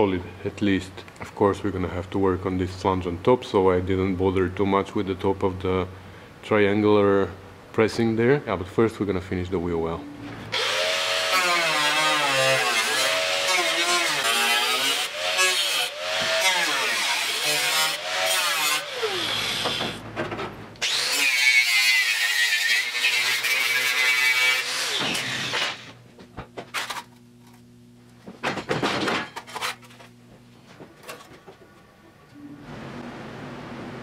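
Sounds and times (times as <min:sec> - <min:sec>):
angle grinder grinding steel: 0:10.5 - 0:20.0, 0:20.8 - 0:25.9
grinder cutting sheet steel: 0:10.5 - 0:20.0, 0:20.8 - 0:25.9
steady low hum: 0:25.4 - 0:34.0.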